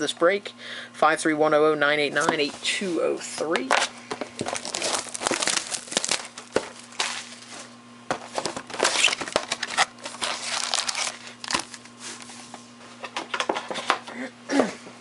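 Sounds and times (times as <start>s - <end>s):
foil packs crinkling: 3.7s - 12.0s.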